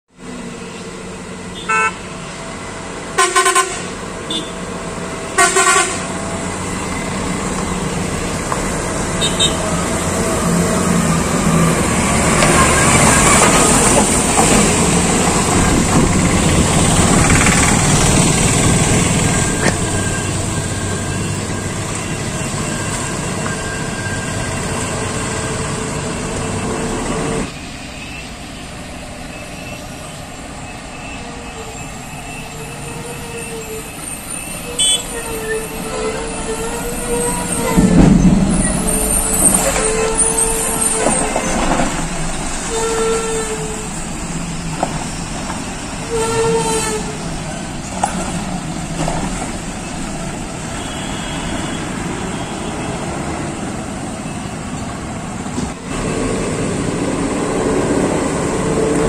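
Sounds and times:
truck diesel engine: 0:00.1 - 0:59.0
vehicle horn tooting: 0:01.6 - 0:02.1, 0:03.2 - 0:04.6, 0:05.4 - 0:06.1, 0:09.2 - 0:09.6, 0:34.6 - 0:37.9, 0:42.7 - 0:43.8, 0:46.1 - 0:47.2, 0:50.8 - 0:52.9.

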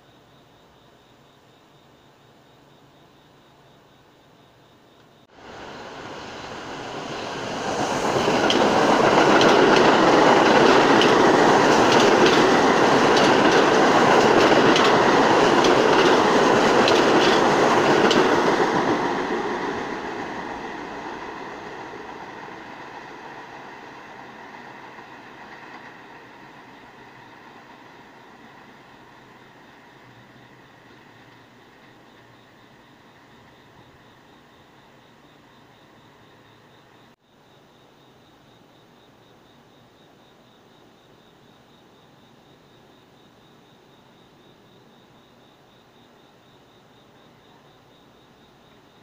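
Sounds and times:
subway train passing: 0:05.3 - 0:37.2
wheel clicks over rail joints: 0:08.4 - 0:18.4.

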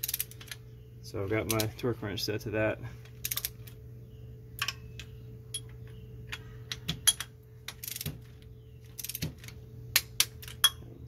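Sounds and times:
torque wrench ratchet clicking: 0:00.0 - 0:00.6, 0:03.2 - 0:03.6, 0:07.2 - 0:08.1, 0:09.0 - 0:09.2
steady low hum: 0:00.0 - 0:11.0.

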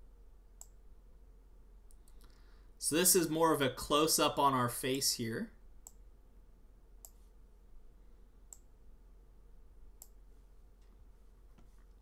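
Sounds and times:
computer mouse clicking: 0:00.6 - 0:00.8, 0:07.0 - 0:07.2, 0:08.5 - 0:08.7.

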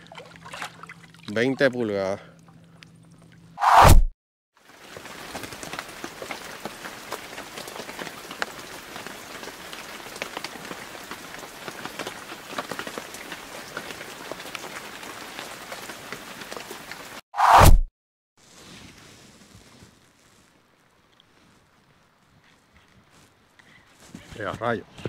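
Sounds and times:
steady rain hiss: 0:04.6 - 0:17.2
raindrop ticks: 0:04.8 - 0:17.0.

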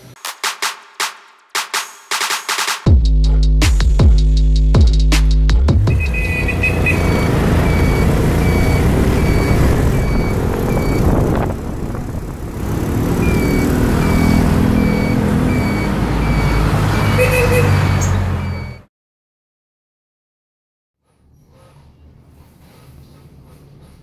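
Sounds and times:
motorcycle engine running: 0:05.7 - 0:14.4
short electronic beep: 0:05.9 - 0:11.2, 0:13.2 - 0:18.9
wind and road noise: 0:05.9 - 0:18.8.

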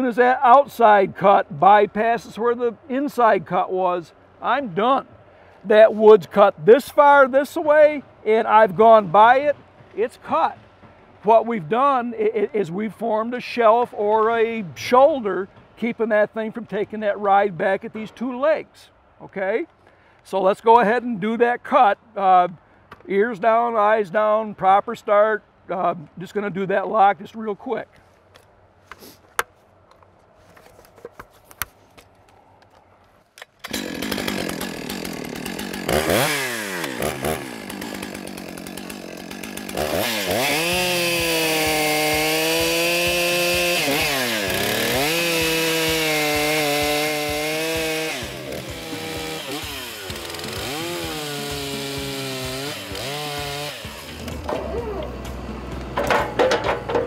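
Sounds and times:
chainsaw revving and cutting: 0:33.6 - 0:56.0.

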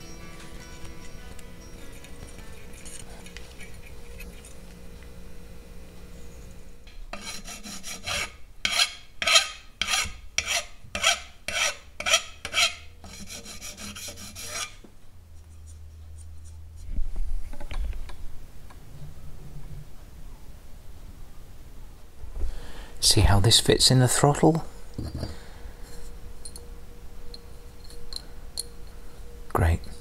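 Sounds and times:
hand file rasping on metal: 0:07.1 - 0:14.8.

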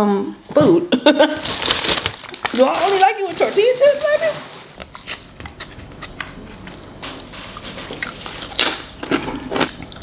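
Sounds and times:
chip crackling: 0:01.4 - 0:04.3
crisp chip crunch: 0:01.4 - 0:05.3, 0:08.0 - 0:10.0.

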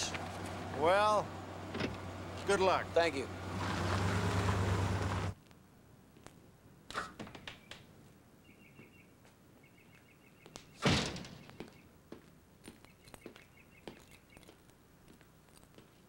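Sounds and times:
faint bird chirps: 0:08.4 - 0:10.8, 0:12.8 - 0:14.6
loud thump: 0:10.8 - 0:11.4.

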